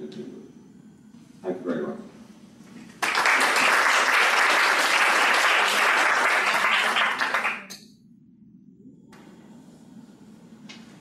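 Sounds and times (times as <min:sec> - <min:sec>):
audience applauding: 0:03.0 - 0:07.7.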